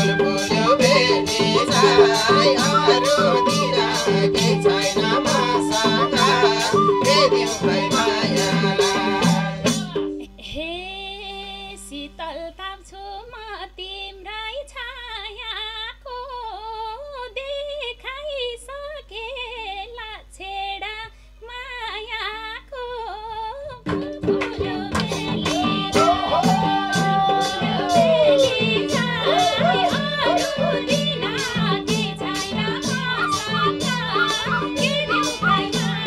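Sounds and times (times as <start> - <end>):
folk band playing: 0.0 - 10.2, 24.0 - 36.0
hand drums: 0.0 - 10.2, 23.8 - 36.0
woman singing: 0.0 - 36.0.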